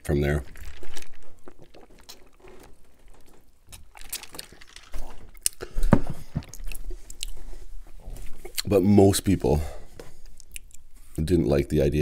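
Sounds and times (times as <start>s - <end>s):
wet mouth noises: 0.4s - 5.8s, 10.2s - 10.8s
person sipping and swallowing: 0.4s - 8.7s.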